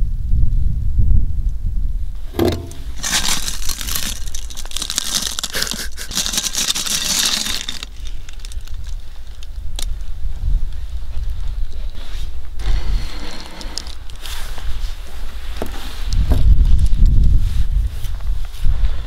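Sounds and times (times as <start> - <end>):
short knock: 2.3 - 3.0
crinkly rustling and handling: 2.6 - 10.1.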